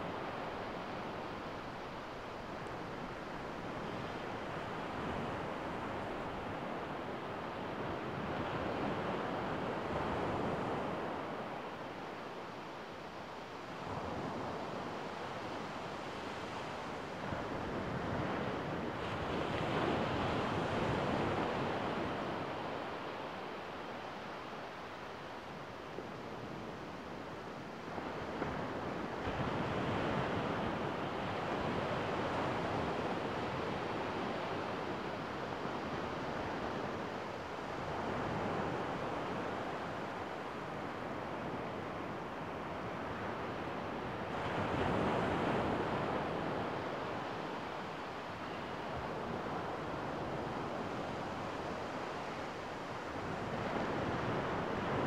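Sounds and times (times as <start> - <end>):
waves breaking on sandy beach: 13.4 - 55.0.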